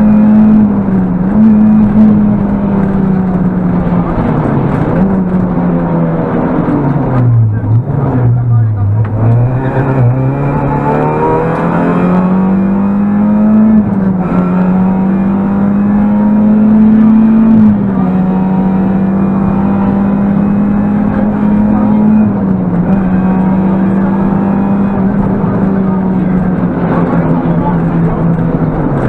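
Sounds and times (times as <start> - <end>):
car engine at high revs: 0.0 - 29.0
road noise: 0.0 - 29.0.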